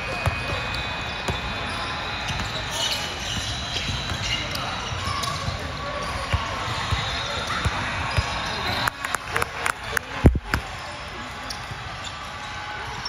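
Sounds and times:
basketball bouncing on court: 0.0s - 8.9s
murmur of voices: 0.0s - 13.0s.

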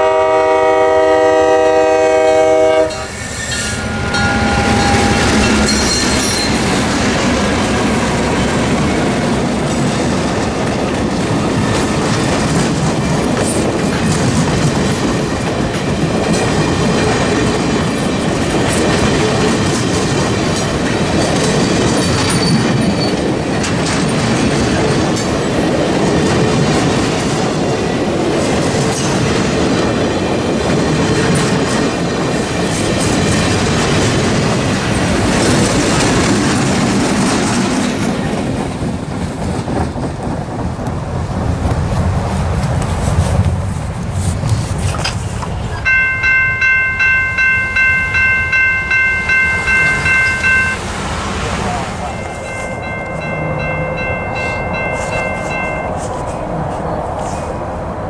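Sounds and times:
diesel locomotive passing: 0.0s - 58.0s
train cars rumbling past: 0.0s - 58.0s
wheels clacking over rail joints: 2.8s - 57.4s.

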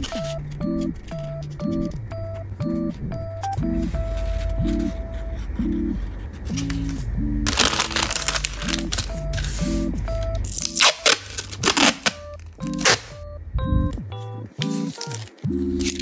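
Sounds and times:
background music: 0.0s - 16.0s
paper rustling: 6.5s - 9.8s, 10.6s - 13.1s, 14.6s - 16.0s
packing tape ripping off roll: 7.5s - 9.1s, 10.5s - 13.1s, 14.7s - 16.0s.

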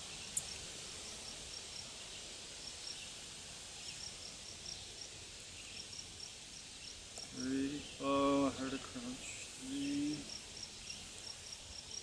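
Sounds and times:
steady hiss: 0.0s - 12.0s
insect chirping in short pulses: 5.7s - 12.0s.

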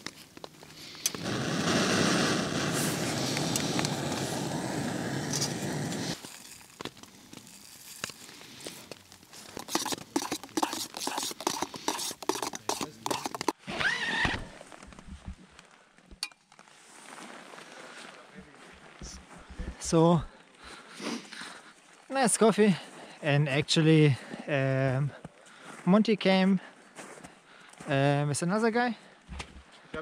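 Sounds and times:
gas stove roaring: 0.8s - 6.7s.

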